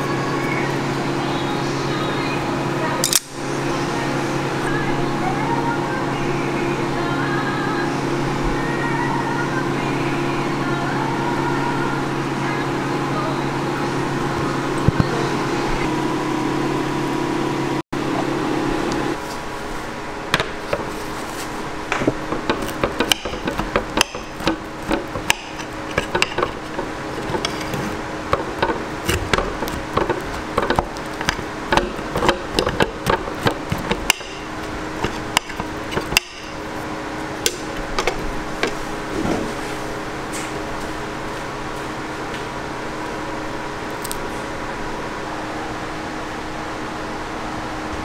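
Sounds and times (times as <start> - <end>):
steady hum: 0.0 - 48.0
cutlery scraping on a plate: 22.5 - 30.8.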